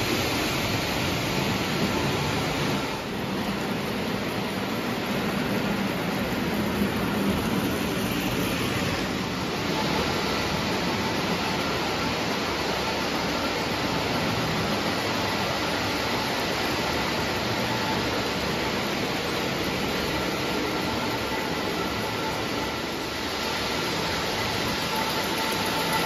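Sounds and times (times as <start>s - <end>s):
faint steady whine: 0.0s - 26.0s
model train wheels rumbling: 0.0s - 26.0s.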